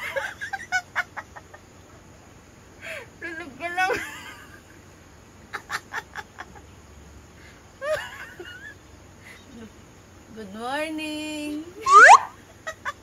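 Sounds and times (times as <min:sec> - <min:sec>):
chicken wavering call: 0:11.8 - 0:12.4.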